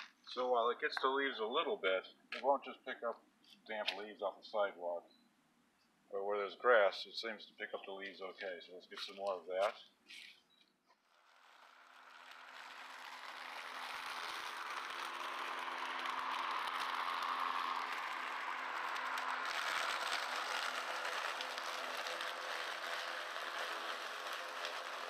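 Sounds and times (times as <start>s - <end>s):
electric lawn mower cutting grass: 11.1s - 25.0s.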